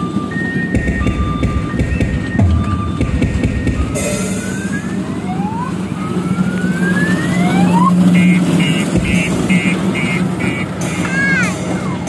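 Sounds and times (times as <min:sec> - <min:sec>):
electronic siren whoops: 0:00.0 - 0:10.7
quick high beeping: 0:08.2 - 0:11.4.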